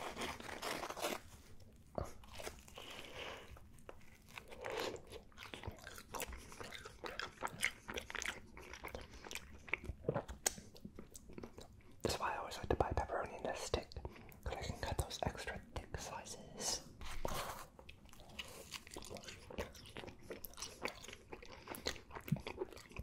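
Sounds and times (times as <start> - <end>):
pizza crust crunching: 0.0 - 9.0.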